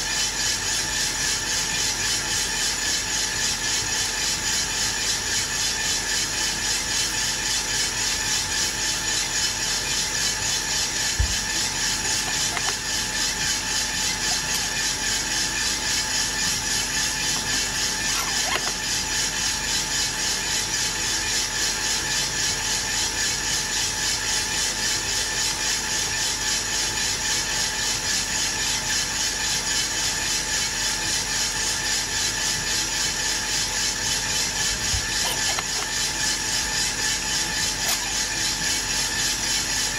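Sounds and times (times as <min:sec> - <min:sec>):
coffee roaster running: 0:00.0 - 0:39.9.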